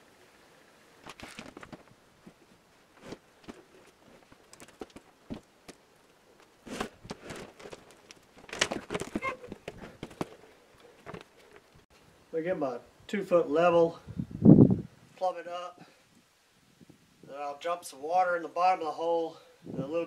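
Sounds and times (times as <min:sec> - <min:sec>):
timber post scraping and knocking: 0:06.4 - 0:11.8.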